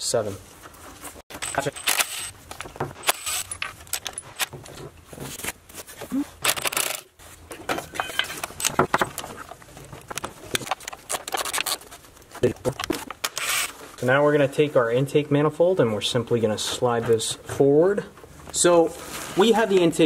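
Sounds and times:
metal tool clinks: 0:01.3 - 0:02.0.

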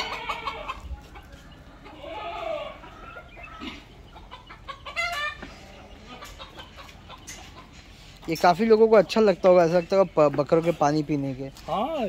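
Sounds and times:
chicken squawk: 0:00.0 - 0:08.2
chicken calling: 0:00.0 - 0:10.7.

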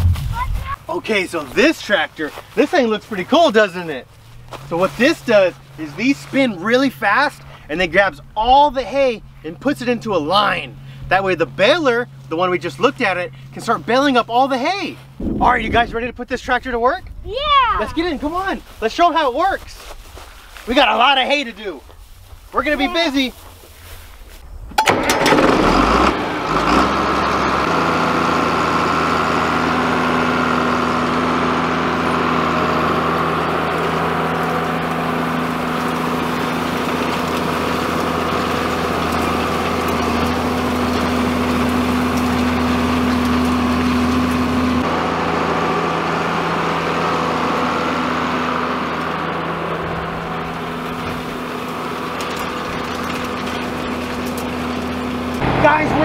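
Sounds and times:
tractor diesel engine under load: 0:00.4 - 0:15.2, 0:24.8 - 0:56.0.

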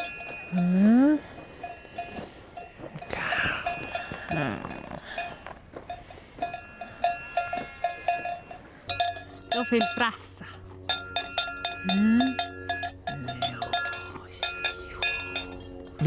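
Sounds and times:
livestock bells clinking: 0:00.0 - 0:16.0.

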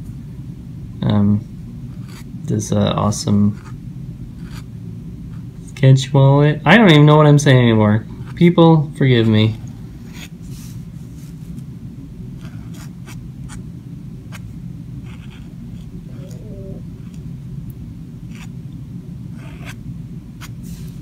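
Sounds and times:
steady low hum: 0:00.0 - 0:21.0
pen scratching on paper: 0:01.9 - 0:02.3, 0:04.4 - 0:04.7, 0:10.1 - 0:10.4, 0:12.4 - 0:13.6, 0:14.3 - 0:16.4, 0:17.0 - 0:17.3, 0:18.3 - 0:18.6, 0:19.3 - 0:19.8, 0:20.4 - 0:20.8.

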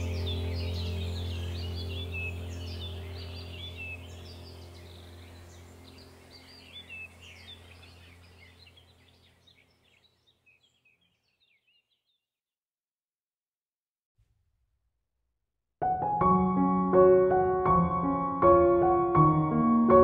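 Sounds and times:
steady low drone: 0:00.0 - 0:09.0
birds chirping: 0:00.0 - 0:12.3.

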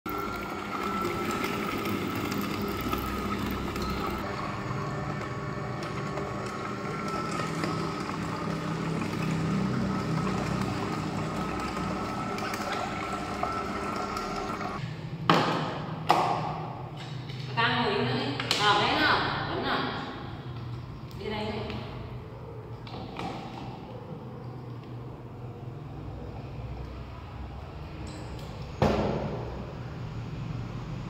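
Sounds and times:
juicer motor humming: 0:00.1 - 0:14.8.

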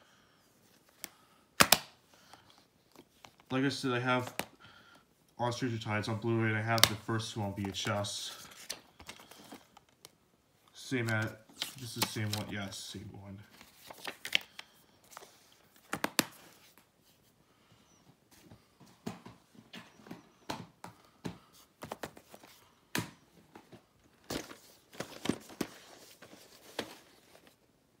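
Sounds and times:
plastic cases clicking and clacking: 0:15.8 - 0:16.4.

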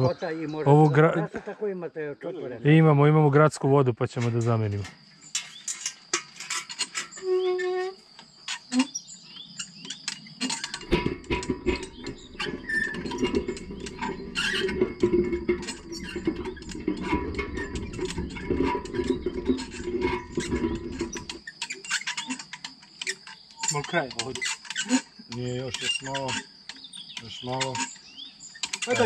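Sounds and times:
windlass clicking and rattling: 0:04.2 - 0:29.0
windlass squeak: 0:04.2 - 0:29.0.

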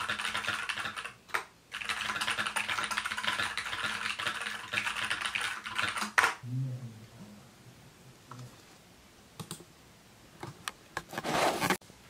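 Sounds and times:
fast typing on keyboard: 0:00.0 - 0:06.4.

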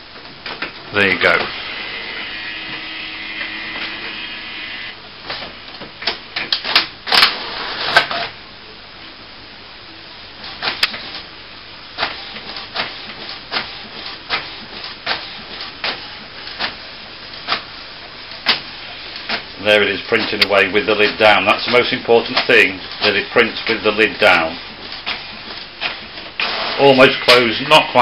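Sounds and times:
printer motor whine: 0:01.0 - 0:05.0
print head clicking: 0:19.2 - 0:26.5.

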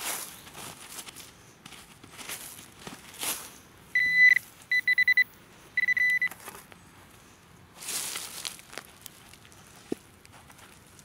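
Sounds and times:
metal detector beeping: 0:04.0 - 0:06.4.

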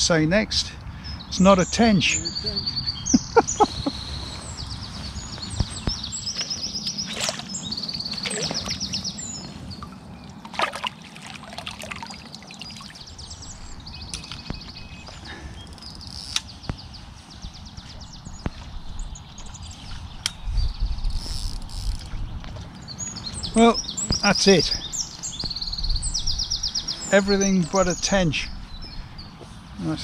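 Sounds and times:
songbird trilling: 0:01.0 - 0:10.5, 0:11.8 - 0:30.0
water sloshing: 0:06.4 - 0:13.3.

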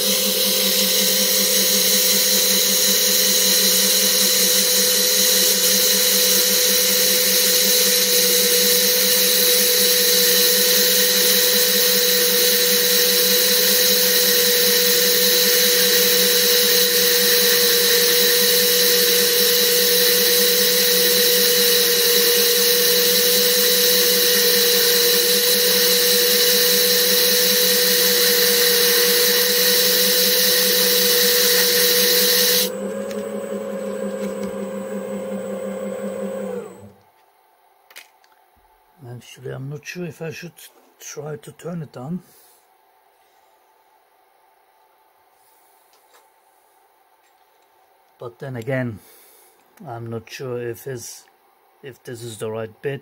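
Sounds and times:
sandpaper hissing on spinning part: 0:00.0 - 0:32.7
lathe motor whining: 0:00.0 - 0:37.0.

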